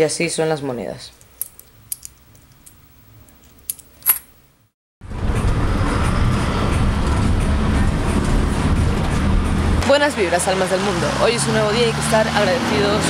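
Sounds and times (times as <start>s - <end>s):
coins clinking in hand: 3.4s - 4.4s
bus engine and road noise: 5.0s - 13.0s.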